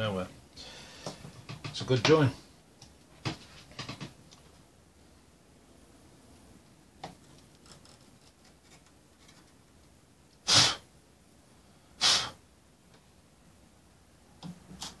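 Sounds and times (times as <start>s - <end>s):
sharp bursts of breath: 0.6s - 1.2s, 10.4s - 10.9s, 11.6s - 12.4s.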